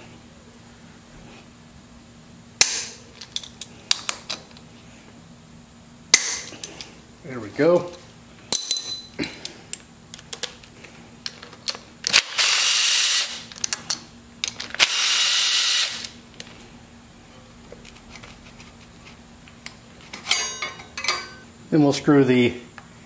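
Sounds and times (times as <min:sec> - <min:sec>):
cordless drill running: 0:12.1 - 0:13.5, 0:14.8 - 0:16.2.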